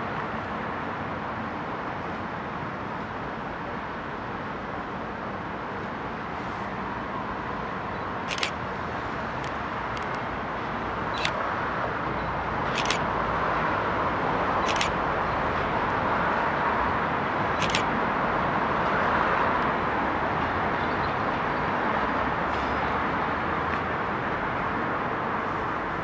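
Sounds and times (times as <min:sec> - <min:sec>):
camera shutter clicking: 0:08.3 - 0:08.6, 0:11.2 - 0:11.4, 0:12.7 - 0:13.0, 0:14.6 - 0:15.0, 0:17.6 - 0:17.9.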